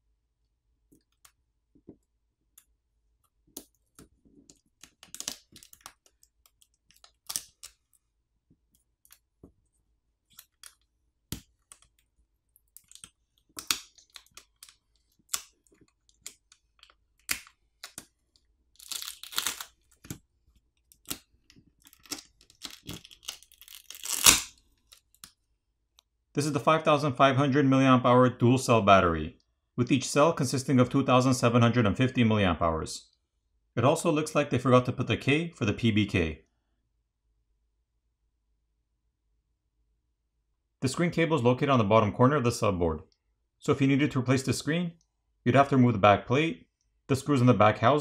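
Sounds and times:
adhesive crackling and tearing: 3.5 - 8.0, 12.6 - 25.4.

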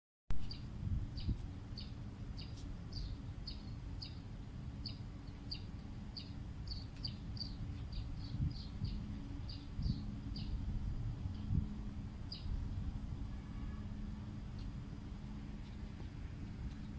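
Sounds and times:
low rumble and hum: 0.3 - 16.9
small bird chirping: 0.4 - 10.6.

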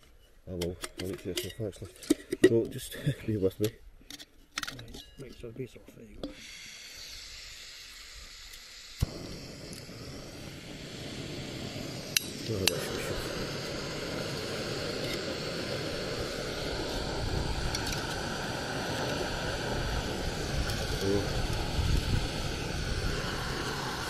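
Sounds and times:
gas stove burner hissing: 6.2 - 24.0.

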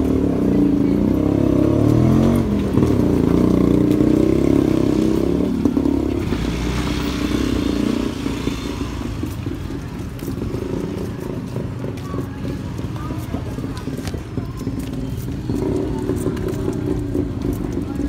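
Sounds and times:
motorcycle engine revving: 0.0 - 12.9.

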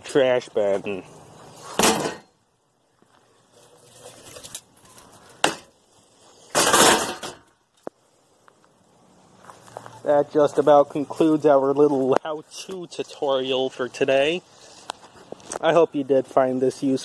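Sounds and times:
metal chair pieces clanking in bin: 1.7 - 2.3, 6.5 - 7.5
metal clattering crash: 1.8 - 2.3, 6.5 - 7.5.

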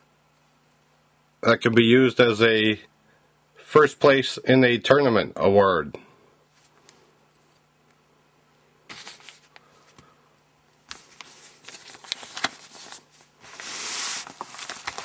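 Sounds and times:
plastic crinkling rustle: 10.9 - 15.0
plastic packaging rustling: 10.9 - 15.0.

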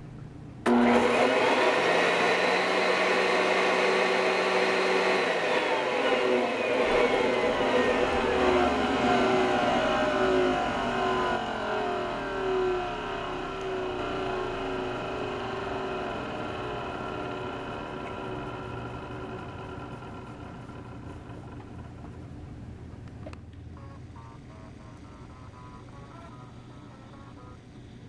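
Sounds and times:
vacuum cleaner motor winding down: 0.7 - 22.2.

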